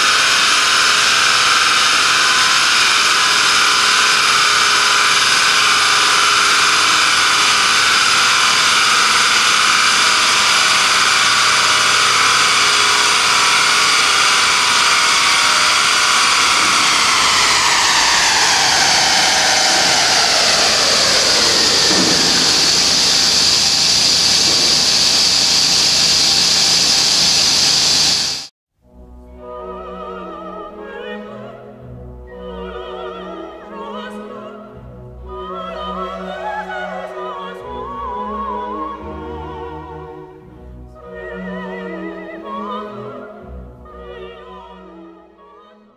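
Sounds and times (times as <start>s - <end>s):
engine on dyno droning: 0.0s - 28.5s
opera singing: 29.3s - 45.9s.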